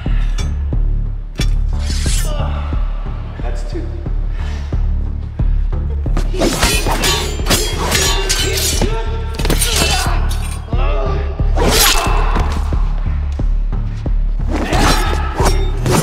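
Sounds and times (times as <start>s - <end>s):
steel swords clashing: 6.3s - 10.7s, 11.6s - 12.2s, 14.5s - 16.0s.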